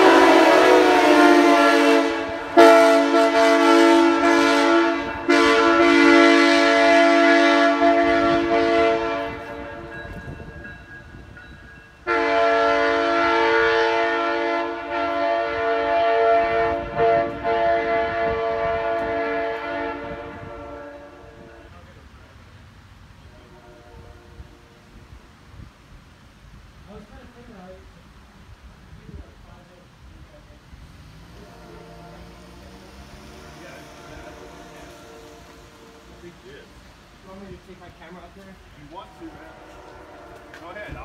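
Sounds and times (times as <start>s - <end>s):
locomotive air horn blasts: 0.0s - 10.0s, 12.0s - 21.8s, 23.2s - 25.2s, 31.1s - 41.0s.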